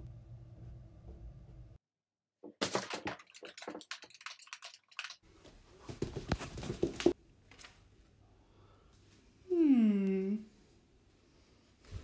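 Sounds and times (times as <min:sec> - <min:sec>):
bare footsteps on wooden floor: 0:05.8 - 0:07.2.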